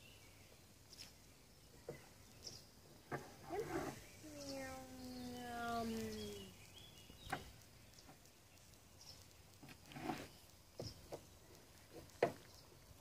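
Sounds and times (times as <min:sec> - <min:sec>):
faint sharp clicks: 0:04.3 - 0:13.0.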